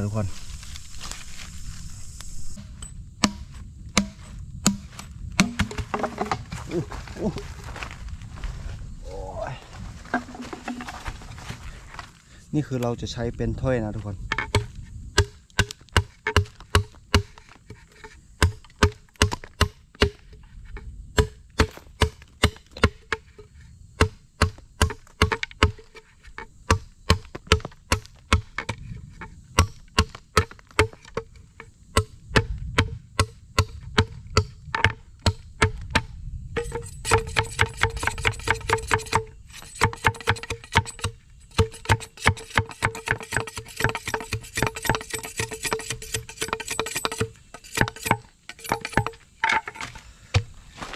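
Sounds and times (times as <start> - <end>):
blade chopping wood: 2.6 - 6.7, 14.3 - 17.8, 18.4 - 20.4, 21.2 - 23.3, 24.0 - 25.9, 26.7 - 28.8, 29.6 - 31.3, 31.9 - 50.9.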